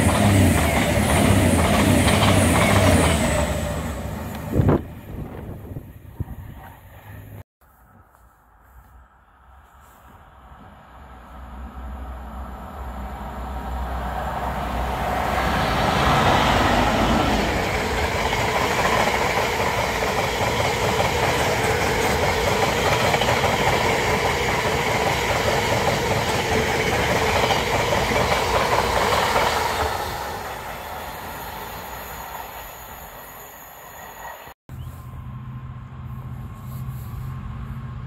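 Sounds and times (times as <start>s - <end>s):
train wheels rumbling on rails: 0.0s - 7.4s, 10.5s - 33.2s.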